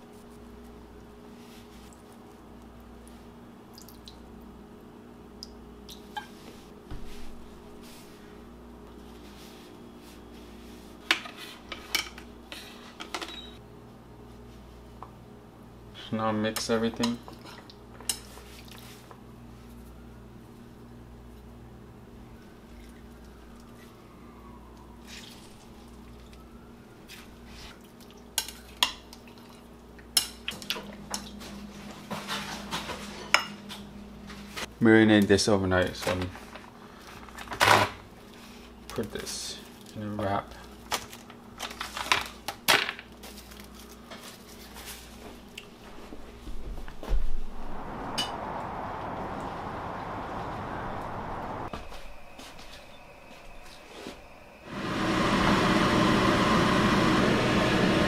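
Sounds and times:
wet hand mixing fish: 25.0s - 26.4s.

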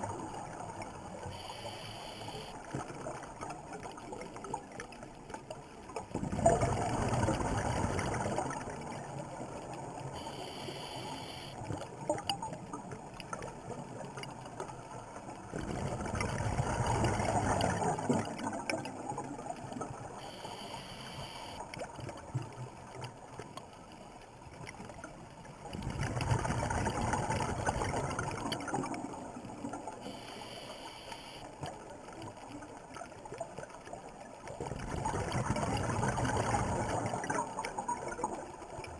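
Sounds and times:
regulator inhalation hiss: 1.4s - 2.5s, 10.2s - 11.6s, 20.2s - 21.6s, 30.1s - 31.4s.

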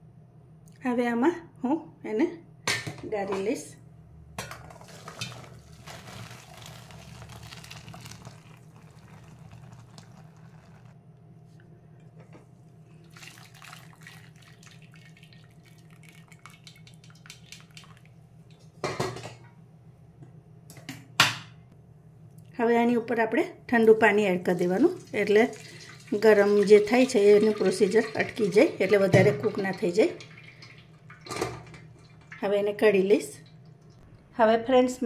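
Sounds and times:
water splashing through colander: 4.8s - 11.0s, 13.0s - 18.8s, 24.5s - 34.0s
water dripping: 5.1s - 10.9s, 13.0s - 18.8s, 24.7s - 32.5s, 33.3s - 34.1s.

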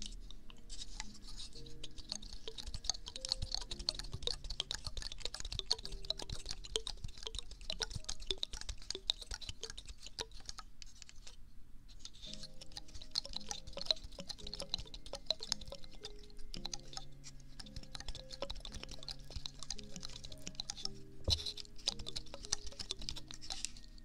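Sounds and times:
pine cone crackling clicks: 0.0s - 11.4s, 12.0s - 24.0s.

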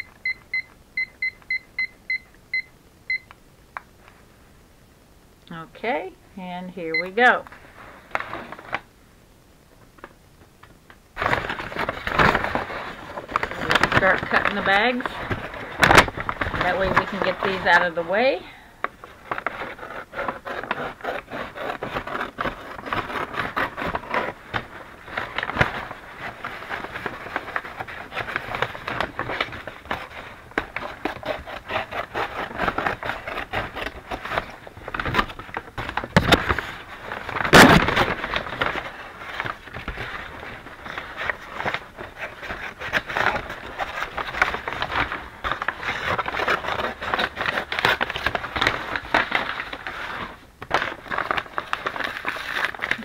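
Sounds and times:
paper bags rustling and crinkling: 7.5s - 8.9s, 11.2s - 53.0s
scissors cutting paper: 19.3s - 24.4s, 25.2s - 36.6s, 41.2s - 49.9s.

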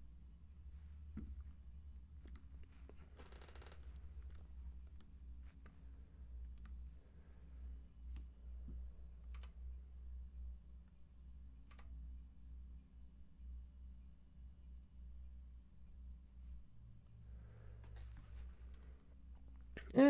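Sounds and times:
low steady hum: 0.0s - 20.0s
keyboard and mouse clicks: 2.2s - 2.6s, 3.6s - 5.8s, 6.4s - 6.8s, 9.2s - 9.6s, 11.7s - 11.9s.

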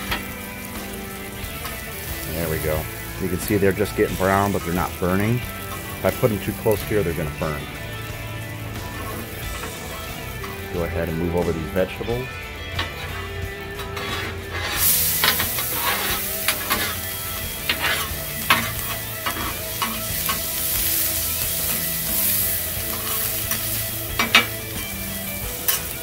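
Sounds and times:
food sizzling on griddle: 0.0s - 26.0s
metal spatulas scraping steel: 12.7s - 20.6s, 22.8s - 24.7s.

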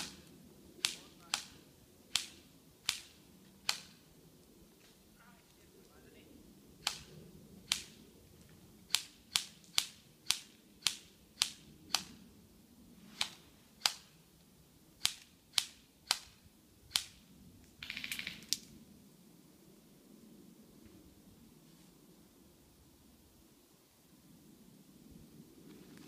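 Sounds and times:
airsoft gun shots: 0.8s - 4.0s.

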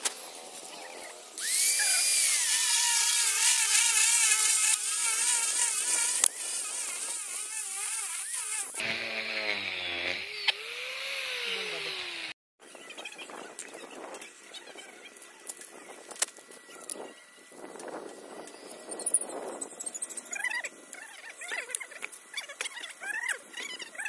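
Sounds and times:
angle grinder cutting concrete: 0.4s - 12.4s.

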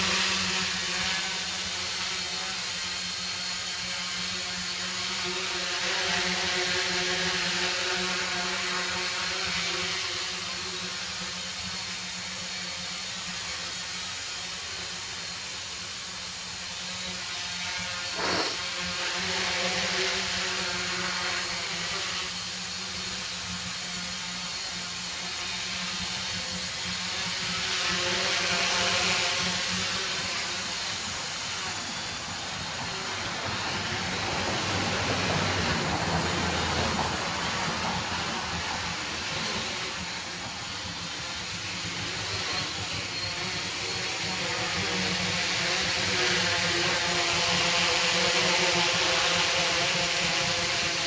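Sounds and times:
drone propellers buzzing: 0.0s - 51.0s.

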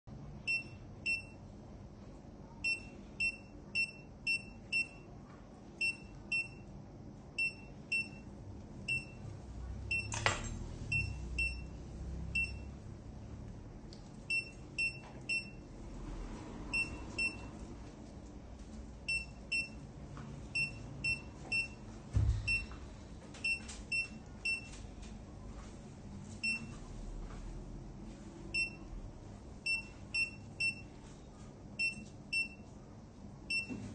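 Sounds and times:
patient monitor beeping: 0.4s - 1.5s, 2.6s - 5.2s, 5.8s - 12.9s, 14.2s - 15.8s, 16.7s - 17.6s, 19.0s - 24.9s, 26.4s - 26.8s, 28.5s - 29.0s, 29.6s - 31.0s, 31.8s - 32.8s, 33.4s - 33.9s.

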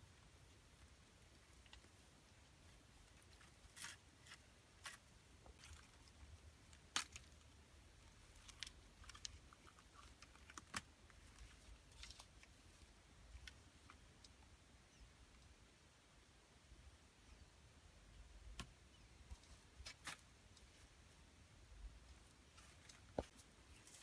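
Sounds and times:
sticks crackling and snapping: 6.7s - 7.4s.

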